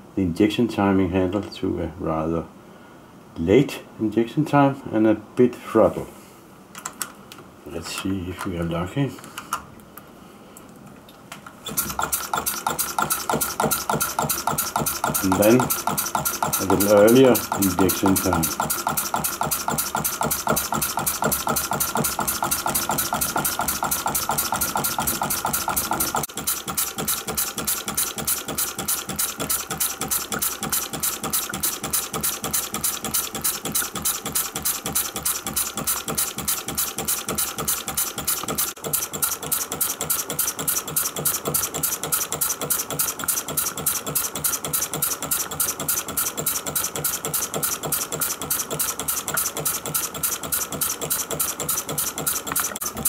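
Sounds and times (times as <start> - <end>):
diesel model engine running: 11.7 - 53.0.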